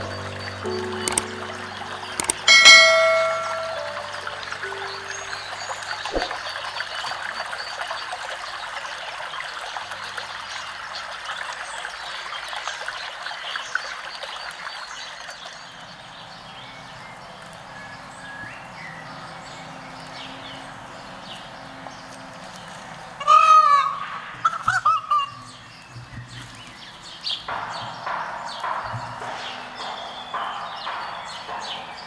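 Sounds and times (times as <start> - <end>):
shallow stream trickling: 0.0 - 23.8.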